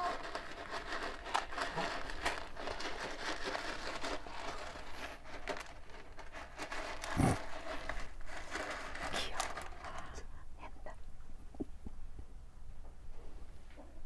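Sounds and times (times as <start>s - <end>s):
kitten scratching in cat litter: 0.0s - 10.3s.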